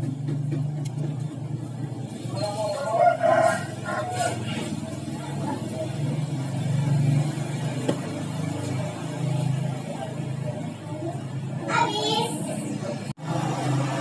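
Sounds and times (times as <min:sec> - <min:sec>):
low rumble of running motor: 0:00.0 - 0:14.0.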